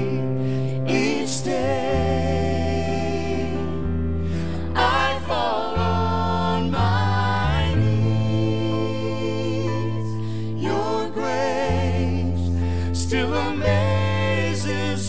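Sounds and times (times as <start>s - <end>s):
low bass: 0.0s - 15.0s
sustained keyboard chords: 0.0s - 15.0s
man and woman singing: 4.8s - 15.0s.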